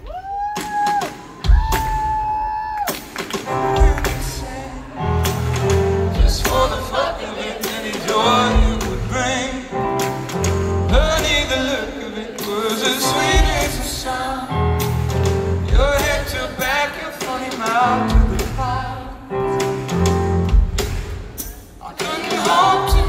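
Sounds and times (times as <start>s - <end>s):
live band music: 0.6s - 23.0s
man singing into microphone: 6.2s - 9.8s, 10.9s - 14.4s, 21.8s - 23.0s.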